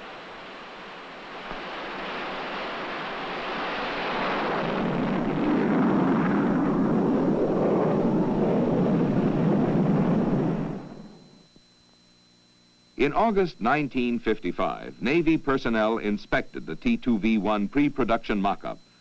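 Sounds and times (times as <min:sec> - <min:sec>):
jet engine roaring: 0:00.1 - 0:11.2.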